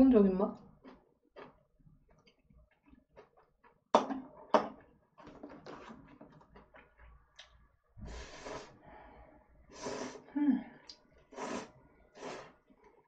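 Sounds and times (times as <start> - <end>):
slurping noodles: 8.0 - 8.8, 9.7 - 10.3, 11.2 - 12.8.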